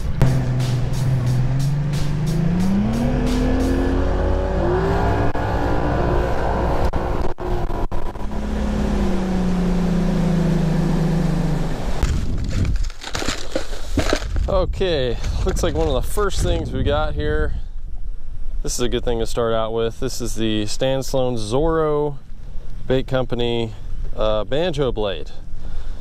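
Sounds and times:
outboard motor accelerating: 0.0 - 12.5
wind rushing over microphone: 11.9 - 12.9, 13.9 - 19.2.

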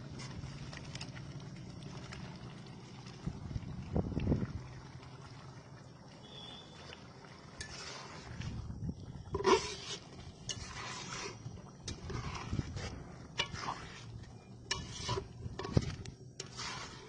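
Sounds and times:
metal ladle scraping pot: 7.5 - 8.6, 9.3 - 17.0.

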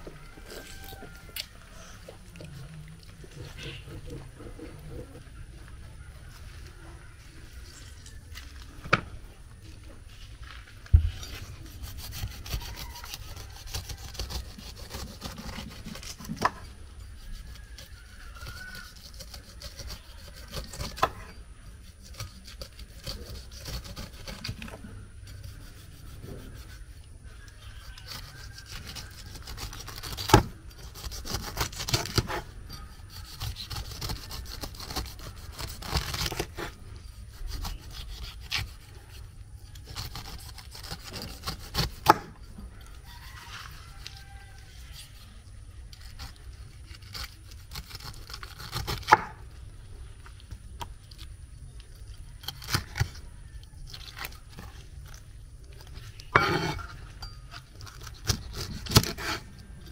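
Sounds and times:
knife sawing through fruit: 11.0 - 42.4, 43.0 - 49.4, 56.0 - 57.1, 57.8 - 59.9.

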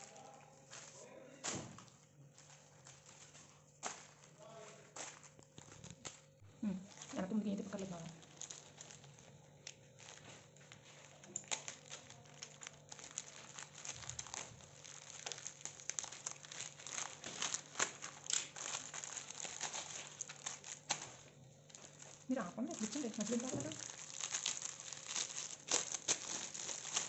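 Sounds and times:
plastic mailer crinkling: 2.3 - 27.0.

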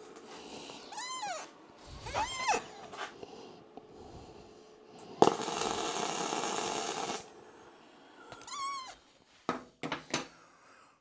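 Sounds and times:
arc welder welding: 5.2 - 7.4.

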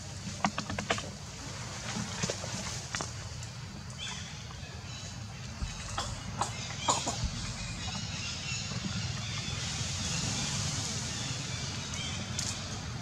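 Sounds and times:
steady hiss: 1.2 - 13.0
low rumble: 5.3 - 11.8.

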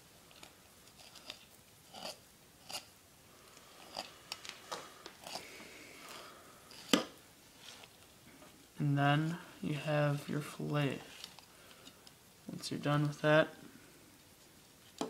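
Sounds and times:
knife scraping along fish bones: 0.9 - 2.9, 3.8 - 4.1.

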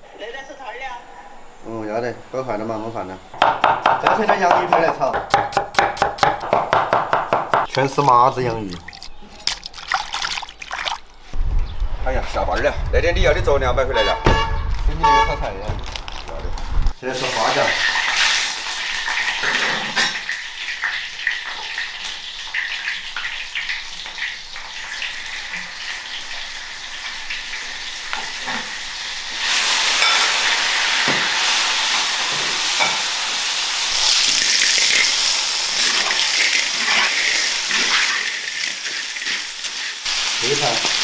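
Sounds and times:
hot oil sizzling in a wok: 16.9 - 41.0.

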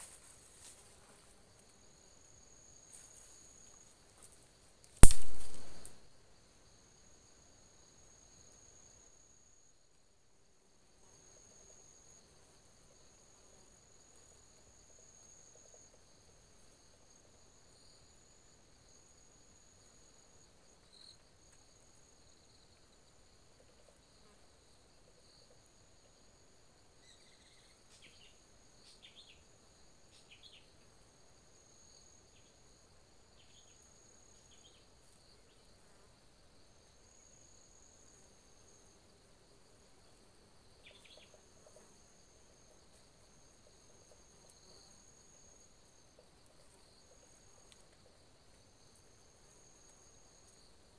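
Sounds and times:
falling chirps: 5.0 - 5.9
high-pitched insect chorus: 5.0 - 5.9, 13.0 - 35.8, 36.5 - 50.9.

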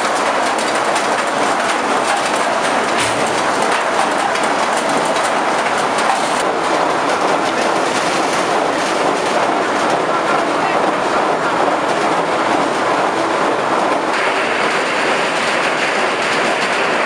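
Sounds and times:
chestnuts rattling into metal hopper: 0.6 - 6.4.

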